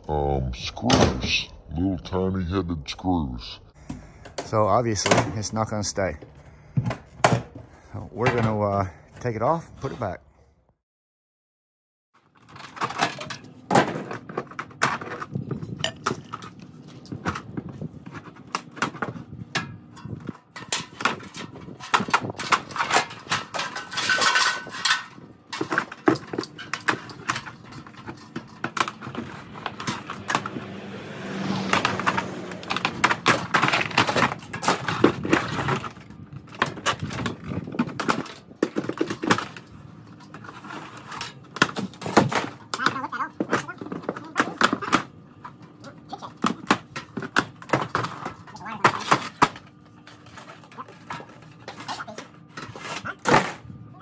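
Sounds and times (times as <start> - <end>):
vinyl siding clattering and snapping: 12.4 - 53.7.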